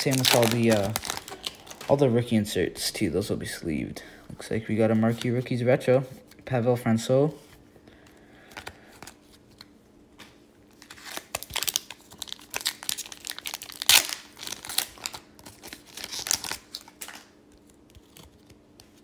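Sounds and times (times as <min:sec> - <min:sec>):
foil wrapper tearing and crinkling: 0:00.0 - 0:02.0, 0:10.8 - 0:18.6.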